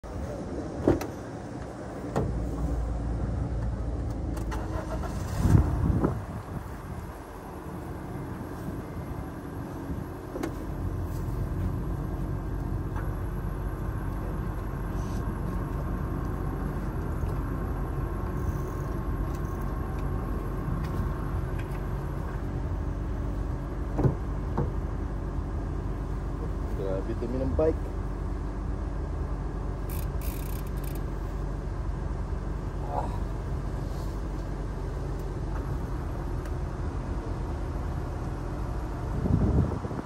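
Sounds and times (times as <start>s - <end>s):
low rumble: 0.0s - 40.0s
car door clunk: 0.8s - 1.2s, 2.0s - 2.7s, 23.9s - 24.8s.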